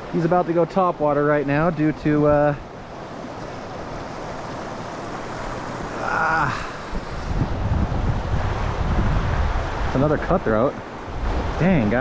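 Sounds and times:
creek water rushing: 0:00.0 - 0:12.0
wind buffeting microphone: 0:01.6 - 0:12.0
person exclaiming: 0:06.0 - 0:06.8.

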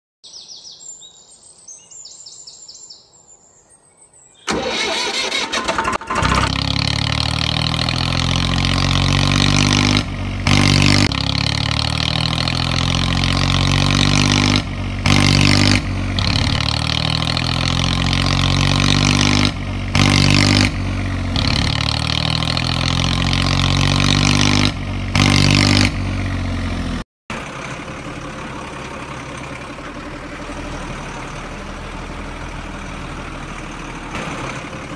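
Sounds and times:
engine revving sound effect: 0:04.5 - 0:27.8
steady engine sound: 0:04.5 - 0:34.9.

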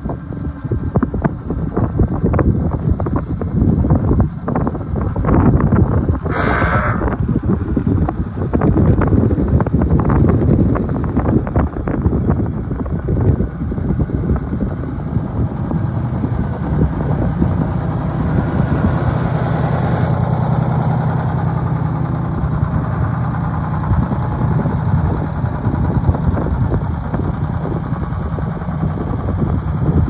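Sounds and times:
truck engine running: 0:00.0 - 0:30.0
wind buffeting microphone: 0:00.0 - 0:30.0
hydraulic hoist raising: 0:06.3 - 0:07.2.

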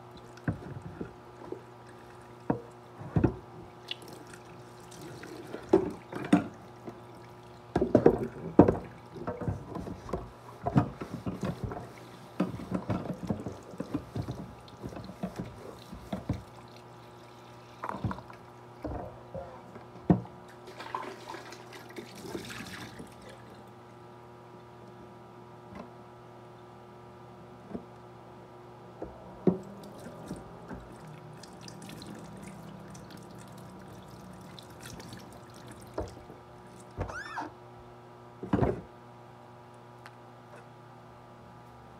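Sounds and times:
faint steady hum: 0:00.0 - 0:41.9
container knocking against sink: 0:07.7 - 0:11.8, 0:38.4 - 0:38.9.

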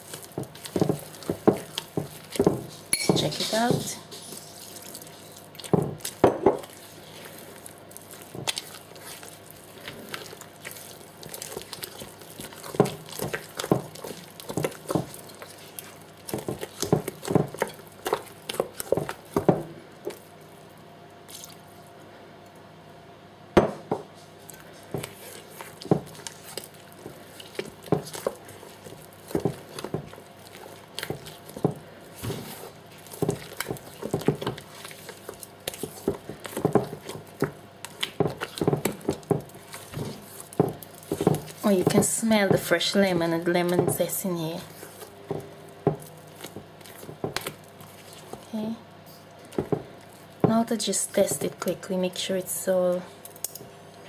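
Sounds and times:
batter squelching in bowl: 0:00.0 - 0:21.9, 0:24.0 - 0:52.6
knock against bowl: 0:23.6 - 0:24.0.

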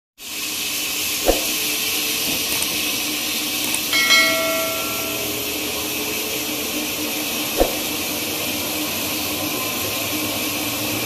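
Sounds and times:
saw blade hissing through log: 0:00.8 - 0:01.8
short metallic ring: 0:03.9 - 0:05.8.

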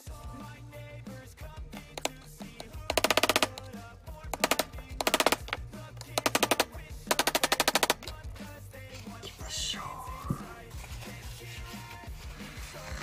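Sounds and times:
hammer tapping staples into wood: 0:01.8 - 0:08.2.

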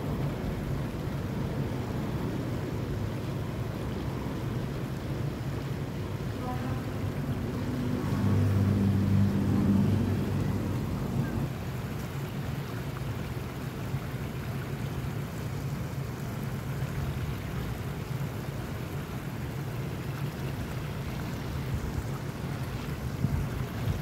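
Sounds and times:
stream rushing: 0:00.0 - 0:24.0
wind buffeting microphone: 0:22.9 - 0:24.0.

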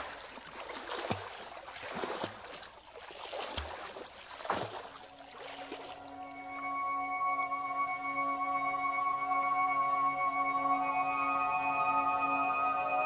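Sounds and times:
water splashing: 0:00.0 - 0:06.3
steady ringing musical tone: 0:06.0 - 0:13.0.

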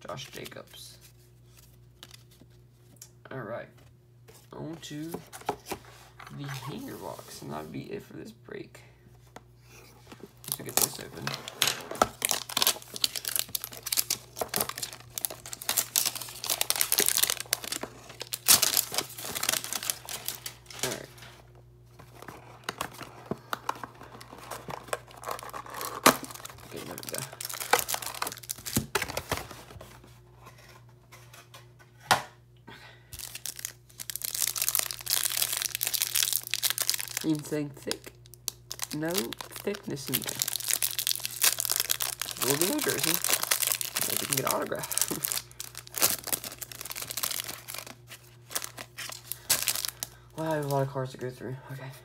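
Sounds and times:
packaging crinkling and tearing: 0:10.3 - 0:29.9, 0:33.2 - 0:50.9.

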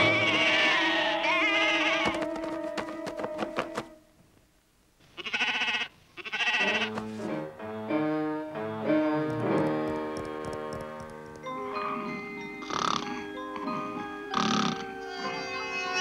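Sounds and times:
cartoon sheep bleating: 0:00.0 - 0:02.3, 0:05.2 - 0:07.0, 0:14.4 - 0:16.0
cartoon music with stepping notes: 0:06.8 - 0:16.0.

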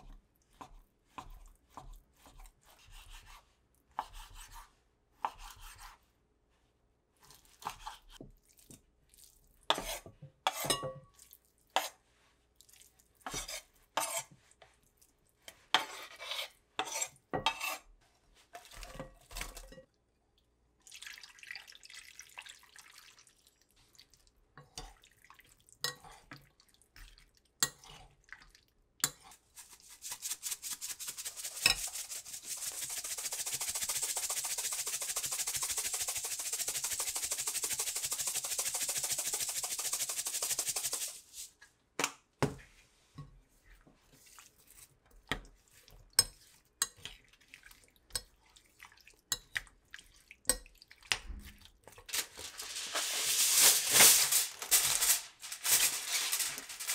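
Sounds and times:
seasoning shaker rattling: 0:29.6 - 0:41.5, 0:52.1 - 0:56.9.

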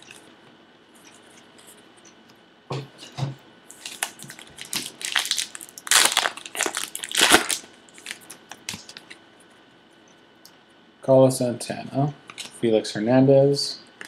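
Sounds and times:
foil wrapper tearing and crumpling: 0:03.7 - 0:09.0.

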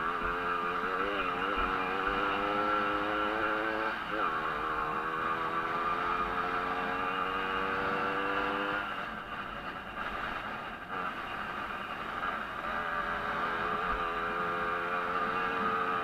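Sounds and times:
moped engine revving high: 0:00.0 - 0:09.0, 0:12.3 - 0:16.0.

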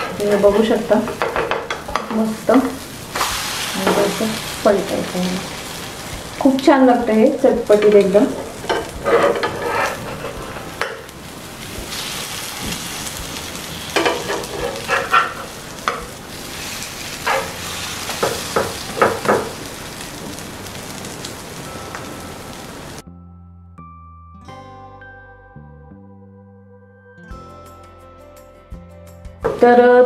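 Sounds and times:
food sizzling in oil: 0:00.0 - 0:23.0
soft music: 0:00.0 - 0:30.0
metal spatula scraping pan: 0:07.7 - 0:11.1, 0:13.8 - 0:19.3.

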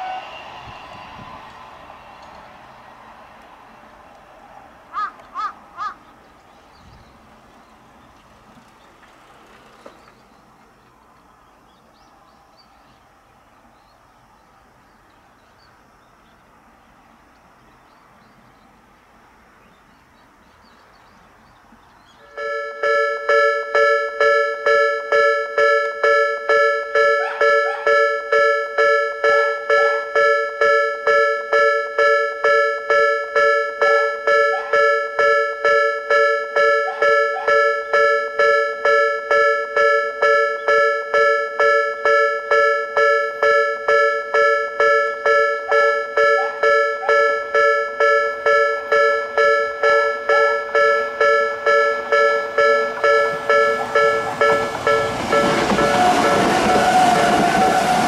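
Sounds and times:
level crossing two-tone bell: 0:22.3 - 0:56.4.

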